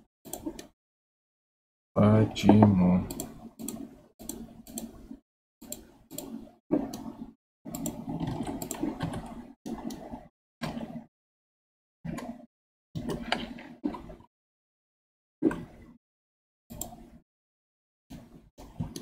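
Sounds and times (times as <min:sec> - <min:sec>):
keyboard and mouse clicking: 0:00.3 - 0:00.7, 0:02.5 - 0:05.0, 0:05.6 - 0:07.1, 0:07.7 - 0:10.8, 0:16.7 - 0:17.0.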